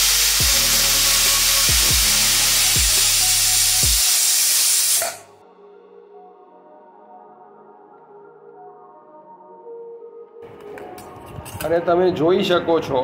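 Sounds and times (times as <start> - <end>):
pressure cooker whistle steam hiss: 0.0 - 5.3.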